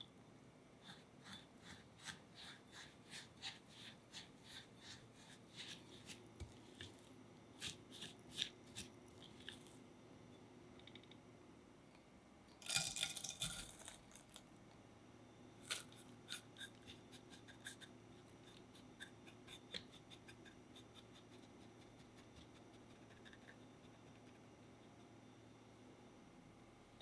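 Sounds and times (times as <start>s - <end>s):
spatula scraping bowl: 0.8s - 9.7s.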